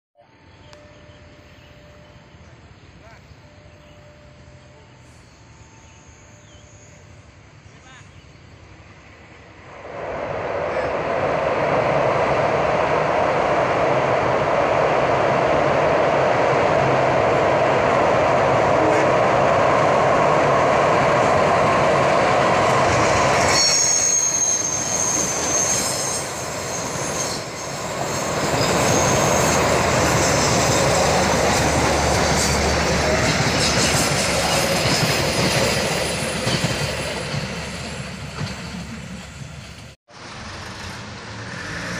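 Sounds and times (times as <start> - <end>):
passenger train rumbling past: 0.2 - 41.9
steel wheels squealing on rail: 21.9 - 39.8.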